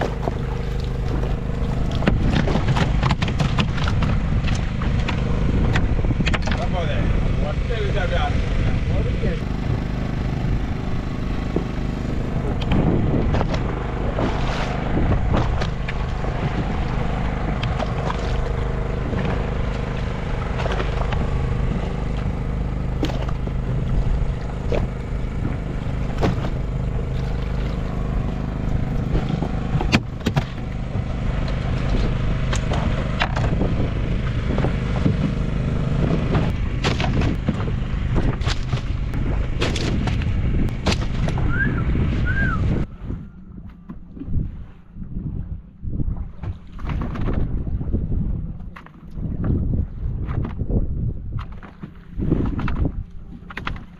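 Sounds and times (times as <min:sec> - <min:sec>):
water splashing: 0:00.0 - 0:06.8, 0:07.6 - 0:43.2
motor humming: 0:00.0 - 0:45.7
knocks on boat: 0:01.9 - 0:06.7, 0:12.4 - 0:16.8, 0:24.7 - 0:27.5, 0:28.2 - 0:41.7.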